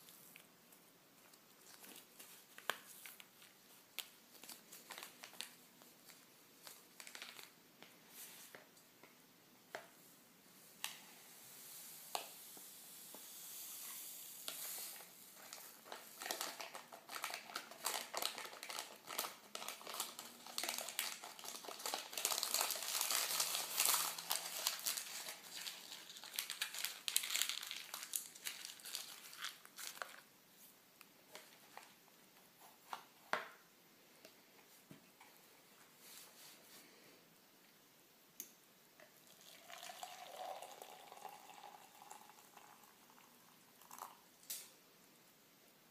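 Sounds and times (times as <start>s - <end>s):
paper wrapper crinkling: 1.2s - 8.6s, 14.5s - 30.3s.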